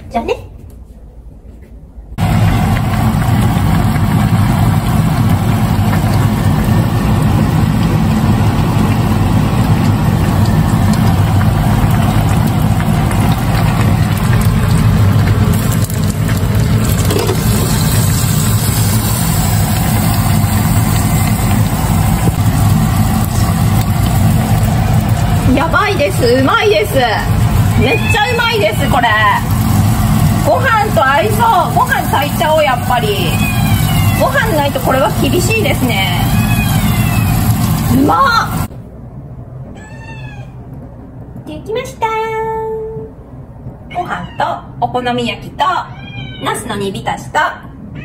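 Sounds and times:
loud steady low hum: 2.1 - 39.8
broth boiling in a pot: 2.2 - 38.7.

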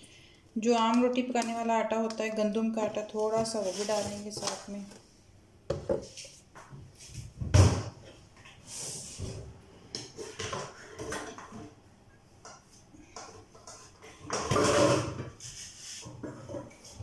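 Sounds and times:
soft rustling: 3.2 - 5.1.

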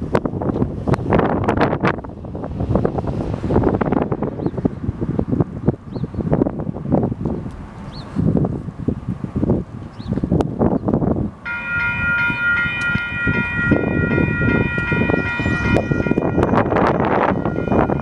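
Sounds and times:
wind buffeting microphone: 0.0 - 18.0
crossing warning bell: 11.4 - 18.0.

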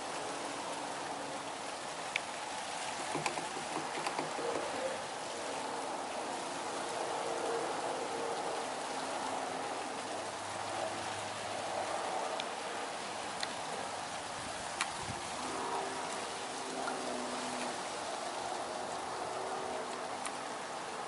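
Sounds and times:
steady rain falling: 0.0 - 21.0
faint small ticks: 2.1 - 4.9, 13.3 - 13.6, 14.8 - 15.0, 19.8 - 20.4.

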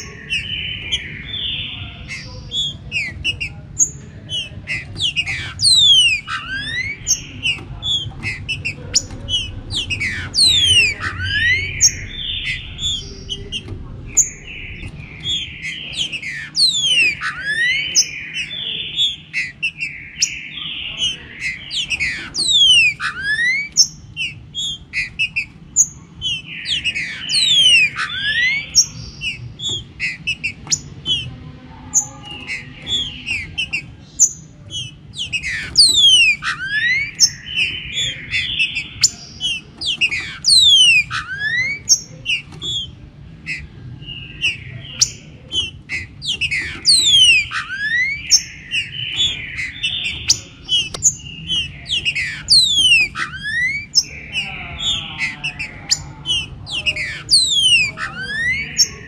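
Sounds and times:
bird whistled song: 0.0 - 31.3, 31.9 - 59.0
low background noise: 0.0 - 59.0.

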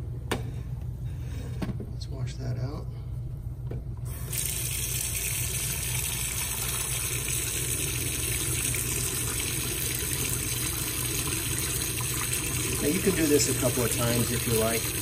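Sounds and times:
steady low hum: 0.0 - 15.0
faucet water running into sink drain: 4.1 - 15.0.

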